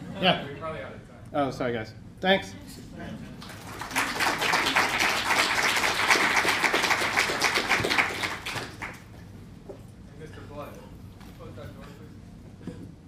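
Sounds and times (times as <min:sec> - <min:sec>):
audience applause: 0:03.4 - 0:09.1.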